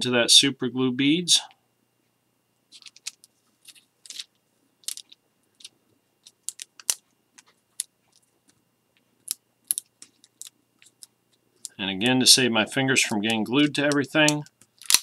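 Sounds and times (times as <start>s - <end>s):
plastic film crinkling: 13.0s - 15.0s.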